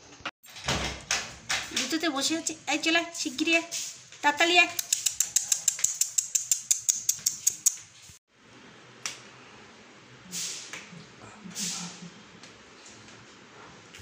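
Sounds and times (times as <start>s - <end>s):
person clicking tongue: 4.8s - 7.8s.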